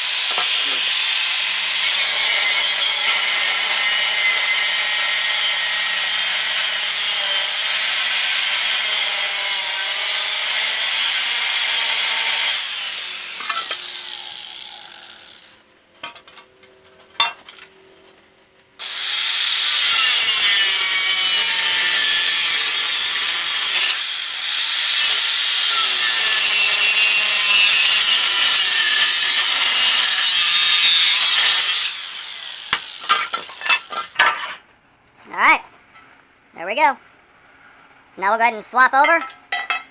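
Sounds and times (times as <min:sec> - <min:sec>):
angle grinder cutting metal: 0:00.0 - 0:15.6, 0:18.8 - 0:34.3.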